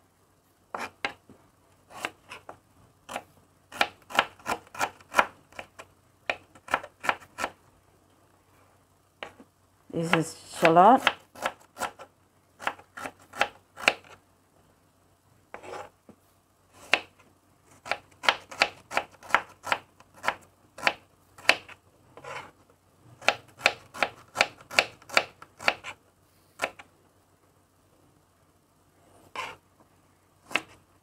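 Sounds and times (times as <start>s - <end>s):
knife chopping on wooden board: 17.8s - 22.4s.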